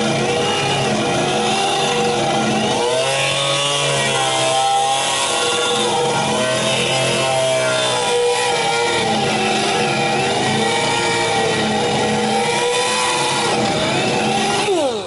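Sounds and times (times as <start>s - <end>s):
die grinder buffing steel: 0.0s - 15.0s.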